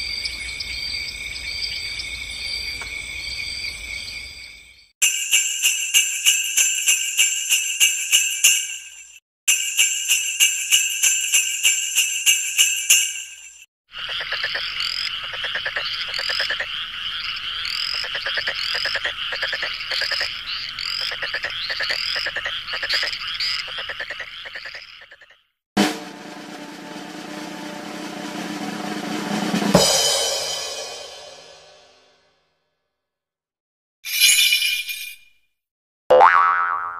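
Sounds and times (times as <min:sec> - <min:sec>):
bell-like jingling: 0:05.0 - 0:13.6, 0:34.1 - 0:35.2
short chirps: 0:34.1 - 0:35.3.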